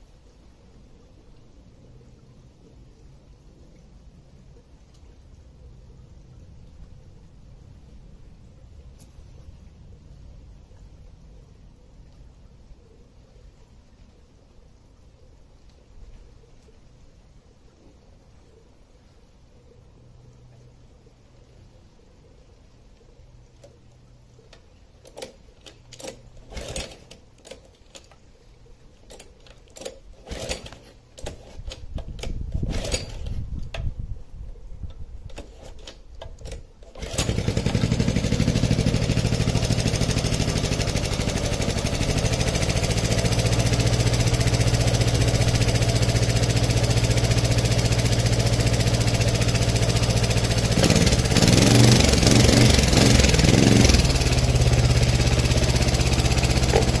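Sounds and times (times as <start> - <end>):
engine pull-start cranking: 25.0 - 28.2, 29.1 - 33.4, 35.3 - 57.0
small engine running and revving: 37.0 - 57.0.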